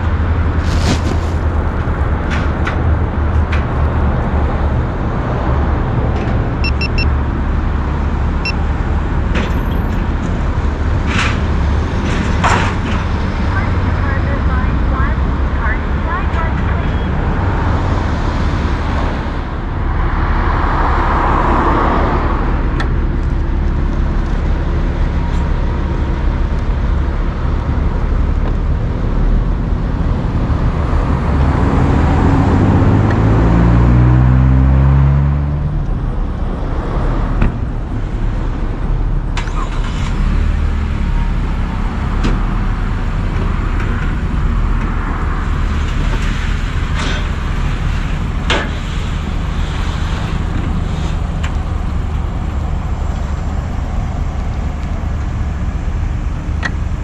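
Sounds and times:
vehicle engines rumbling: 0.0s - 57.0s
engine revving: 29.0s - 55.8s.

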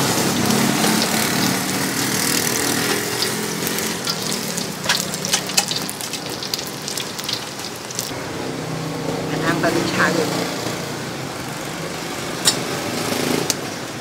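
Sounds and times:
food deep-frying in oil: 0.0s - 8.2s.

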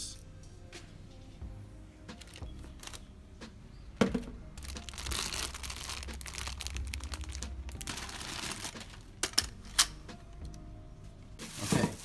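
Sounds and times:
plastic wrapping crinkling: 2.2s - 3.1s, 4.6s - 9.5s.

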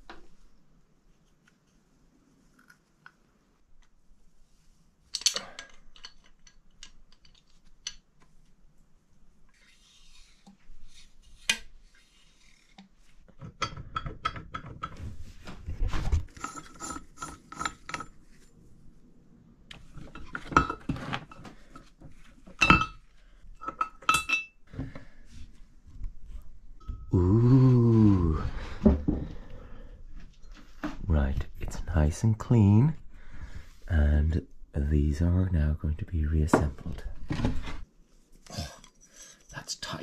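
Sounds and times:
metal parts clinking: 5.1s - 8.0s.

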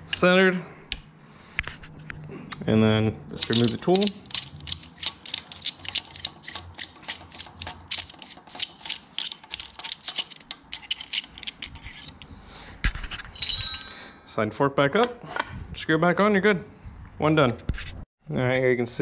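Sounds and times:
ratchet tool clicking: 3.4s - 12.3s.

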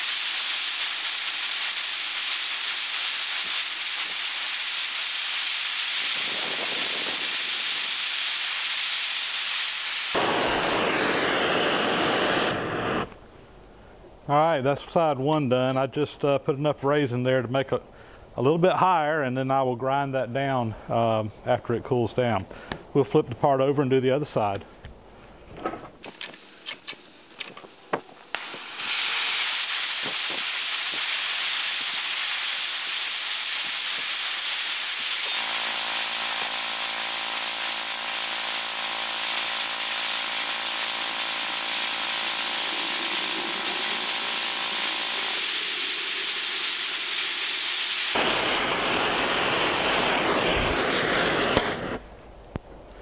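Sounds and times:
torch flame hissing: 0.0s - 13.3s, 27.2s - 52.4s.

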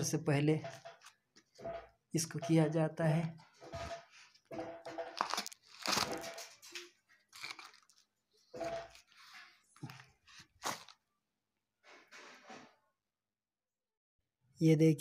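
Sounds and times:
cardboard crunching and tearing: 5.1s - 6.6s, 7.3s - 8.1s, 8.9s - 11.0s.

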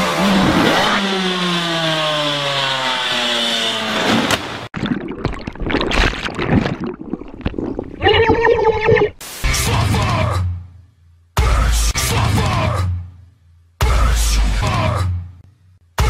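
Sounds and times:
underwater water noises: 4.7s - 9.2s.

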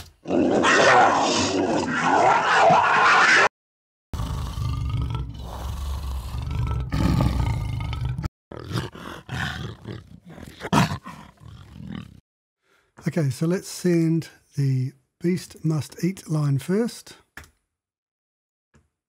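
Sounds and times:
creature snarls and growls: 0.2s - 3.5s, 4.2s - 12.2s.

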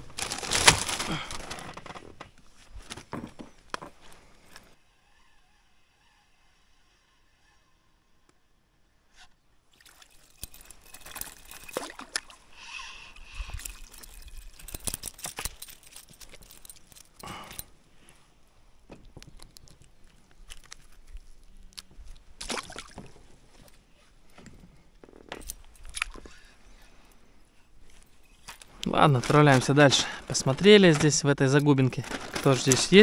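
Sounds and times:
gear knocking and clattering: 29.0s - 33.0s.

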